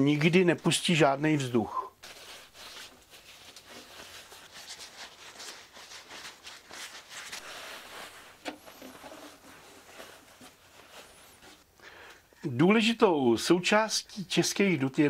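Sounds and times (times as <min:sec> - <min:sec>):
rustling and scratching of leather: 0:02.0 - 0:11.7.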